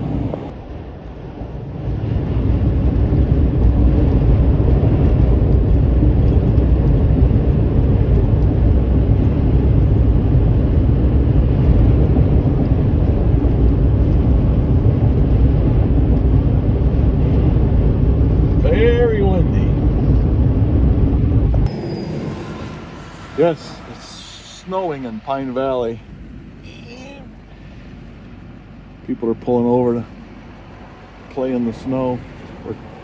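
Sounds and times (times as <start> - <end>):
wind noise: 0.0 - 29.0
road noise: 0.0 - 33.0
truck engine: 0.0 - 33.0.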